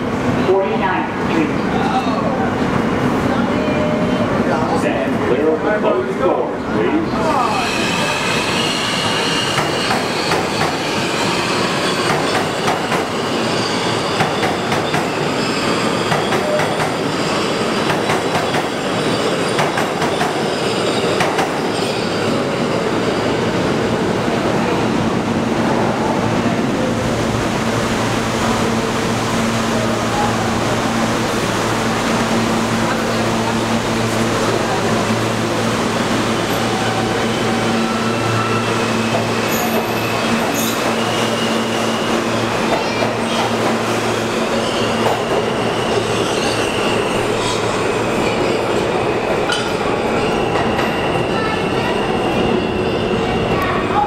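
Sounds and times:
train wheels squealing and clicking: 0:07.4 - 0:23.4, 0:36.4 - 0:54.0.

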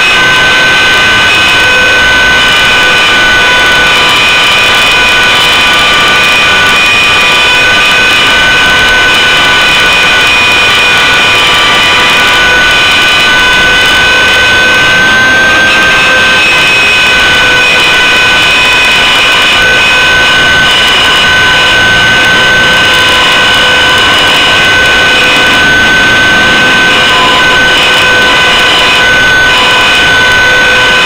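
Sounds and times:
helicopter rotor whine: 0:00.0 - 0:31.0
rushing air: 0:21.9 - 0:29.2.

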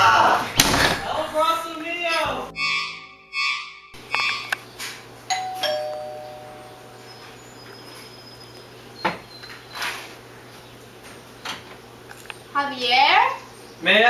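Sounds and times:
sharp knock: 0:00.6 - 0:01.3
two-note doorbell chime: 0:05.3 - 0:07.2.

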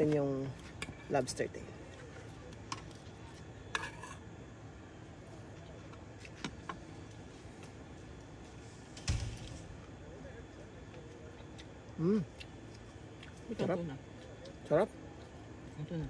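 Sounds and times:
loud thump: 0:08.9 - 0:09.8.

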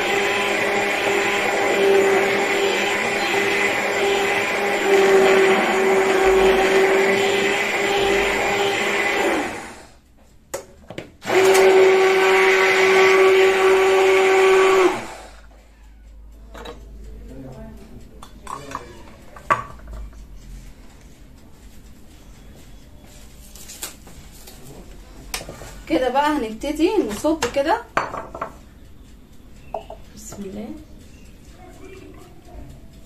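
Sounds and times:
stick blender running: 0:00.0 - 0:10.0, 0:11.2 - 0:15.5
blender clicks: 0:11.2 - 0:15.1.

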